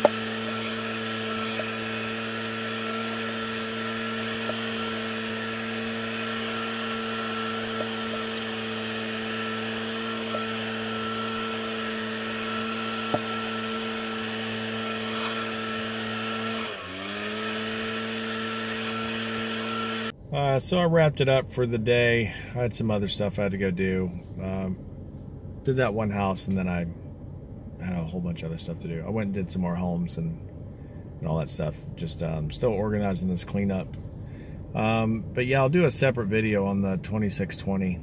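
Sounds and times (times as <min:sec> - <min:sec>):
small petrol engine running: 0:00.0 - 0:20.1.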